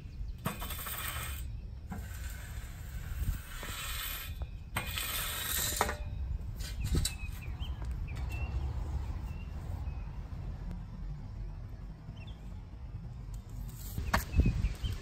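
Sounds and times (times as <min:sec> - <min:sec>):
metal rake scraping on lawn: 0:00.4 - 0:07.1
rake knocking down: 0:00.4 - 0:07.2.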